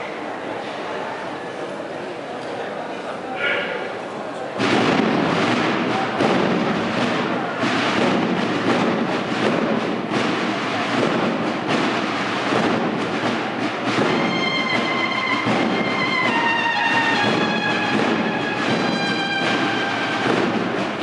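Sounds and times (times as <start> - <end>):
drums beating: 4.6 - 21.0
brass long held notes: 14.1 - 21.0.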